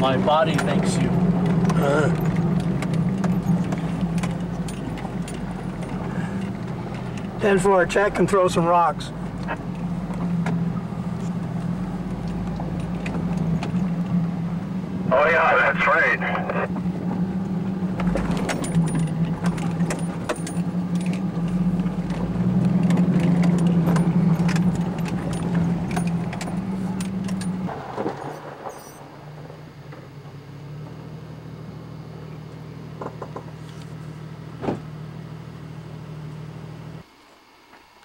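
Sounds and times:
car engine running: 0:00.0 - 0:37.1
body rattles and clicks: 0:00.5 - 0:07.4, 0:18.0 - 0:27.6.

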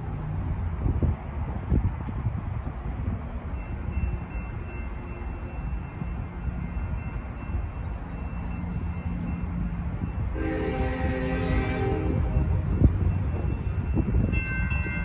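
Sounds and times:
train rumble: 0:00.0 - 0:15.0
locomotive horn blast: 0:10.3 - 0:12.5.

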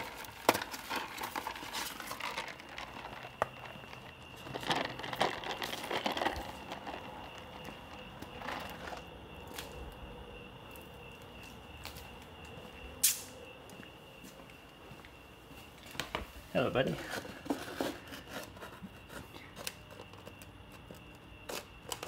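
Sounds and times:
plastic bag crinkling: 0:00.0 - 0:07.6
handling noise: 0:00.0 - 0:10.1.

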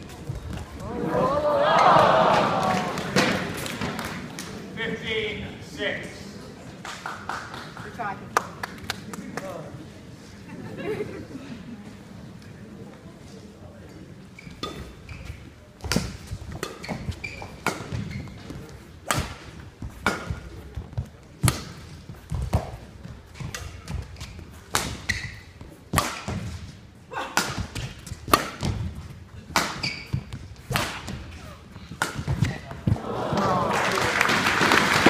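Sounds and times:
rackets hitting shuttlecock: 0:14.6 - 0:33.4.

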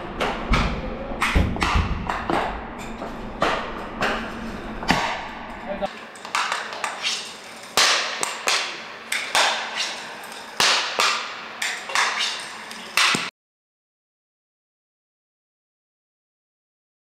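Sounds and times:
hockey sticks striking ball: 0:00.2 - 0:13.3.

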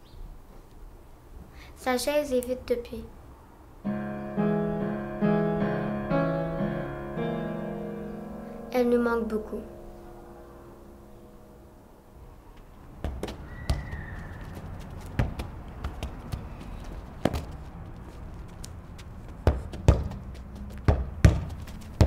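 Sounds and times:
irregular knocks and taps: 0:13.0 - 0:13.9, 0:18.5 - 0:22.0.

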